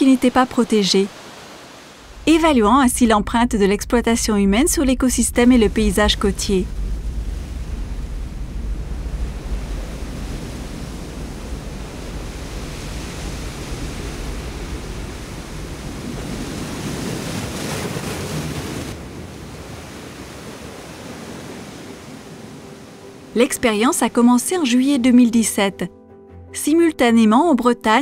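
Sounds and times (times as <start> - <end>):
waves breaking on rocks: 5.6 - 22.2.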